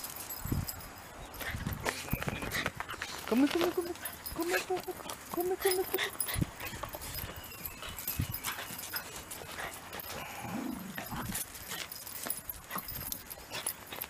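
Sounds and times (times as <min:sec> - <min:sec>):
dog low vocal sound: 0:10.0 - 0:11.4.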